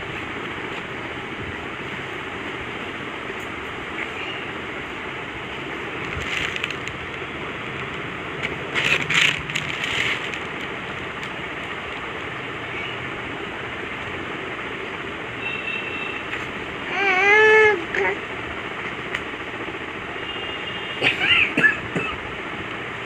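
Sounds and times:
bedding and clothes rustling: 0:05.5 - 0:11.5.

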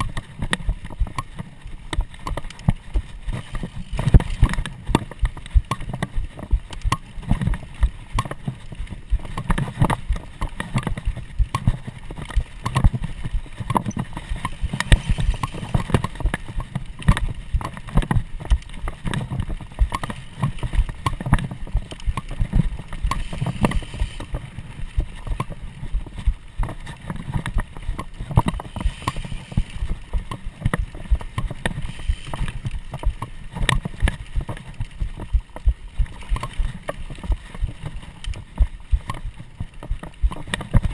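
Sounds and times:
mountain bike rattling over dirt: 0:00.0 - 0:40.9.

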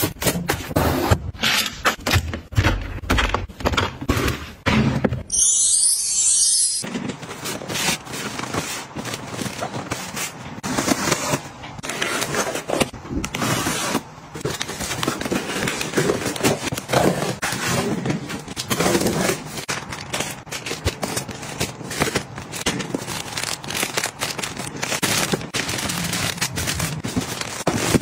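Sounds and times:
objects rustling and scraping: 0:06.8 - 0:28.0.

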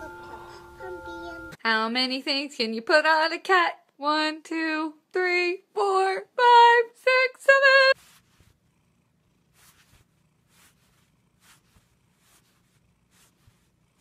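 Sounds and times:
high-pitched voice counting: 0:00.0 - 0:01.6.

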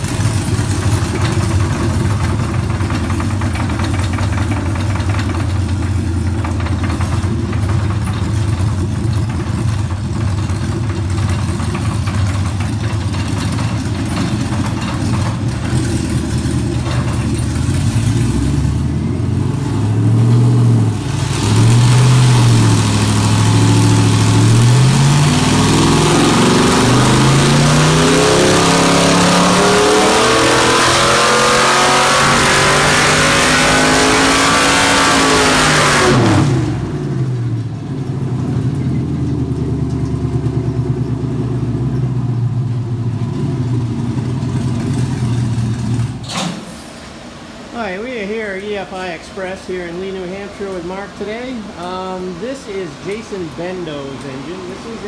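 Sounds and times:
engine revving at full throttle: 0:17.7 - 0:37.4.

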